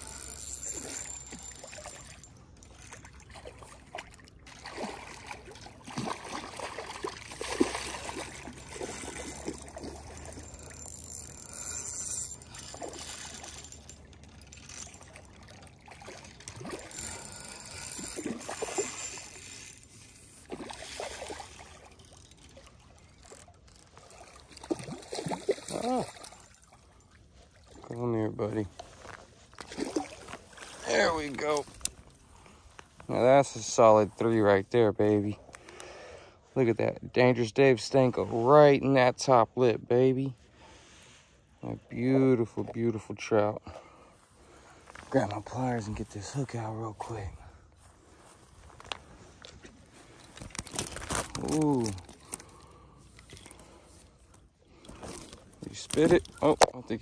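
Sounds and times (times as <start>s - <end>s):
water sloshing against shore: 0.0s - 35.8s, 40.3s - 57.0s
fish splashing at surface: 3.3s - 10.7s.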